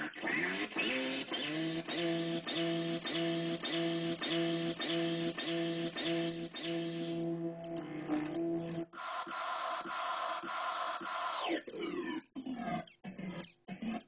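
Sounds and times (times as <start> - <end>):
buzzy stuttering tone: 0.0 - 12.1
glitching electronic voice: 3.1 - 9.4.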